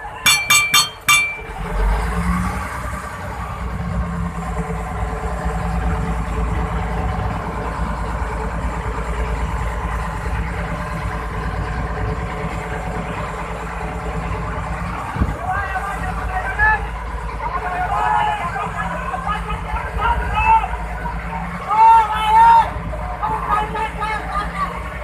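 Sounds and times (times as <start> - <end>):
boat engine rumbling: 0.0 - 25.0
sharp clink: 0.3 - 1.6.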